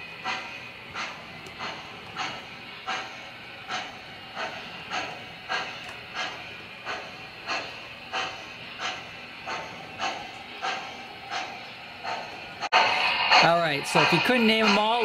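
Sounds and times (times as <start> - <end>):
model steam locomotive chuffs: 0.0 - 15.0
train rolling on track hiss: 0.0 - 15.0.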